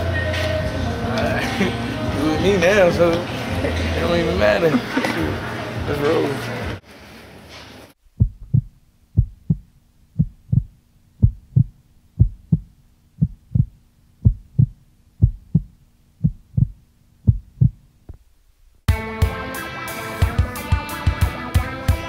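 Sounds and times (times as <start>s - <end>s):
heartbeat thumps: 8.0s - 18.3s
faint steady hum: 8.0s - 18.9s.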